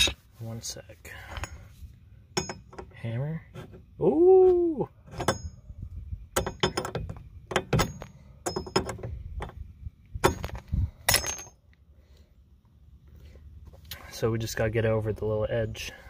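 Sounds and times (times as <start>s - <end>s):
hammer striking metal: 2.4s - 2.8s.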